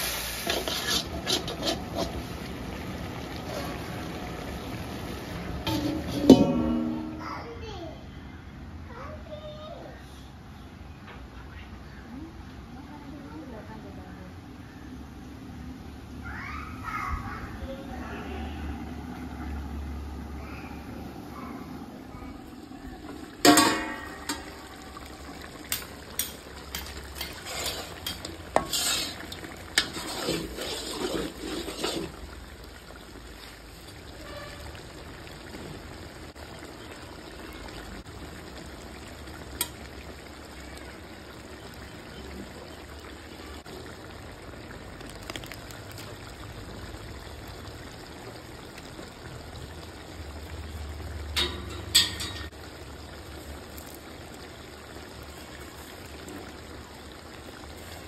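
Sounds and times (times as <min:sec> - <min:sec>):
chicken frying sizzle: 0:00.0 - 0:07.6, 0:14.6 - 0:58.0
metal scrapes: 0:00.4 - 0:02.3, 0:05.6 - 0:07.2, 0:25.7 - 0:32.2
metal lid clanking: 0:05.6 - 0:07.2, 0:23.2 - 0:24.7, 0:51.3 - 0:52.5
metal knocks: 0:05.7 - 0:07.2.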